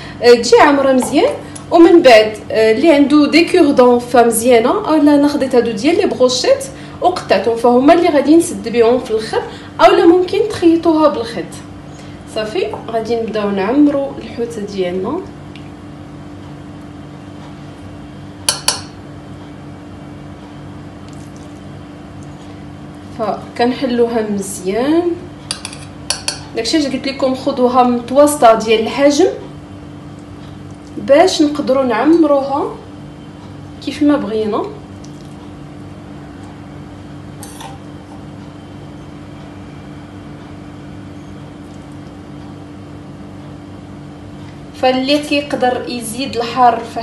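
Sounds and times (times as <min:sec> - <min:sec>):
steady low hum: 0:00.0 - 0:47.0
utensil clinking on metal bowl: 0:18.5 - 0:19.0, 0:25.5 - 0:26.5.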